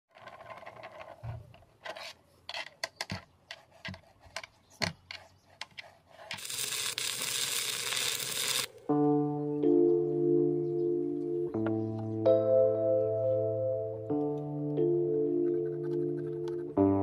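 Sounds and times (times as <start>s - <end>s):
metal clicks and scrapes: 5.1s - 8.7s
steady hiss: 6.4s - 8.7s.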